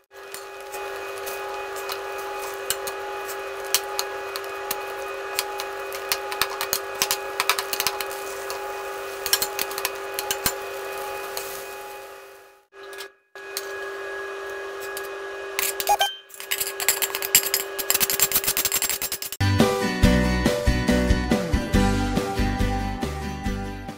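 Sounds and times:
steady hum: 0.0 - 12.7
metal tongs clinking on wok: 9.2 - 11.6.

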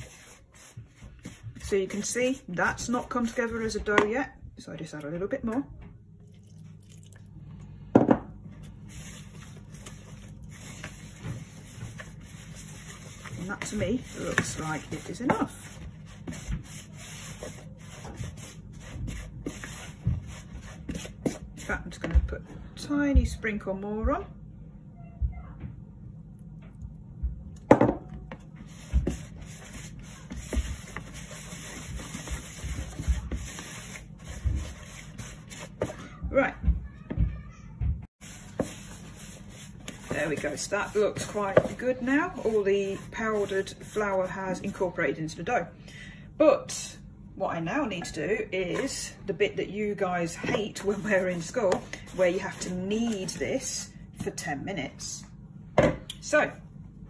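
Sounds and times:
wooden spoon stirring dough: 0.0 - 4.1, 8.6 - 22.4, 28.1 - 37.5, 38.2 - 45.4, 48.0 - 54.5
glass jug knocking on worktop: 8.0 - 8.3, 27.7 - 28.1.

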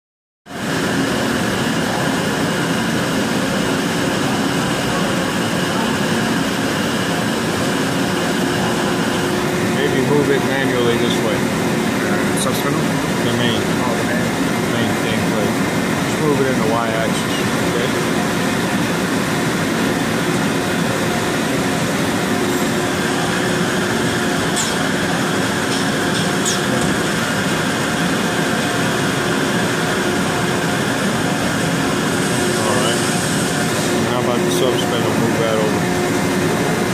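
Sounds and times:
lathe machine hum: 0.5 - 36.9.

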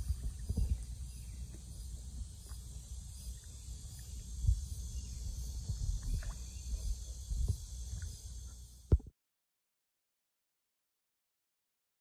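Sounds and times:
insect chirring: 0.0 - 9.0
dull thump: 8.9 - 9.1.

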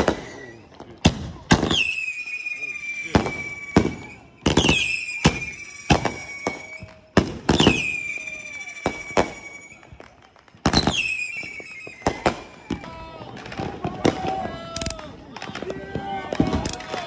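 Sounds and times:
firework whistle dropping in pitch: 0.0 - 0.8, 1.6 - 13.1
fireworks bangs: 0.0 - 17.0.

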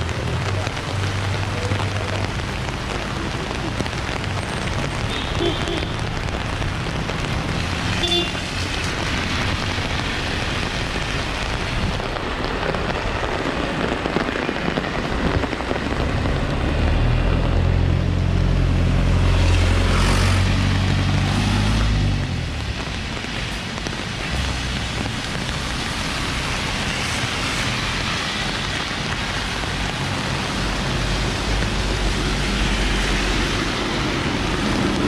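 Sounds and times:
steady rain on pavement: 0.0 - 35.0
tyres hissing on wet road: 0.0 - 35.0
passing vehicle engine: 16.0 - 22.7.

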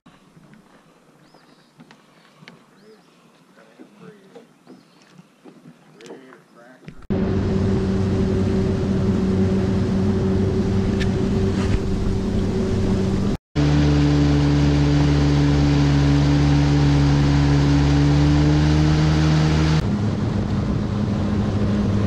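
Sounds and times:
outboard motor running: 6.8 - 22.0.

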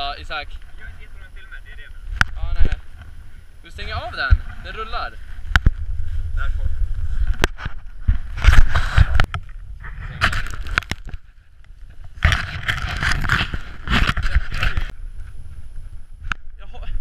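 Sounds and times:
wind rumbling on microphone: 0.0 - 17.0
gloved hands rubbing and knocking camera: 5.3 - 15.6.

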